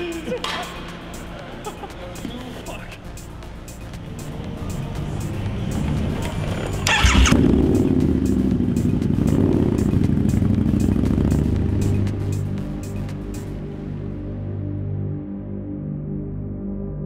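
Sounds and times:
background music with beat: 0:00.0 - 0:16.5
motorcycle engine starting and rumbling: 0:04.3 - 0:13.0.

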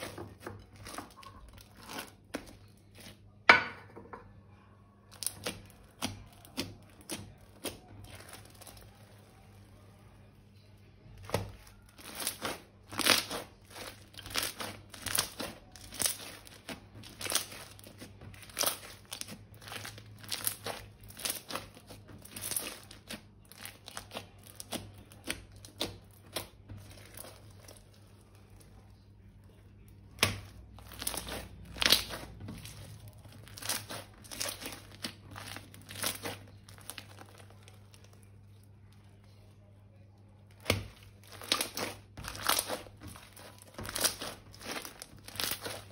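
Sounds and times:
crinkling handling noise: 0:11.0 - 0:39.6, 0:40.4 - 0:45.9.

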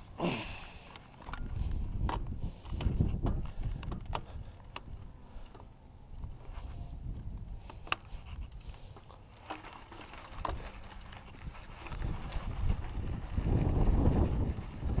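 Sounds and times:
bike tyres rolling on dirt: 0:00.0 - 0:15.0
bike clicks and knocks: 0:00.2 - 0:15.0
wind rumble on microphone: 0:01.2 - 0:05.2, 0:06.1 - 0:08.9, 0:10.3 - 0:15.0.

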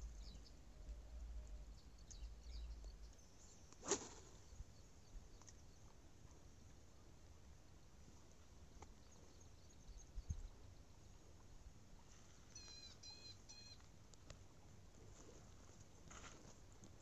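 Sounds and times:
fishing rod cast swish: 0:03.8 - 0:04.4
wind rumble on microphone: 0:09.8 - 0:10.7
faint high chirps: 0:12.5 - 0:13.8.

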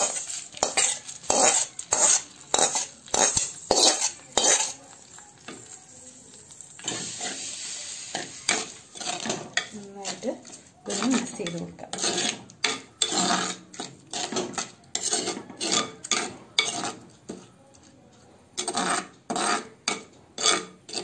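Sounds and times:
metal ladle scraping a pan: 0:00.0 - 0:05.7, 0:06.5 - 0:17.1, 0:18.6 - 0:21.0
oil sizzling: 0:00.0 - 0:15.8
spoon stirring: 0:00.0 - 0:18.0, 0:18.6 - 0:21.0.

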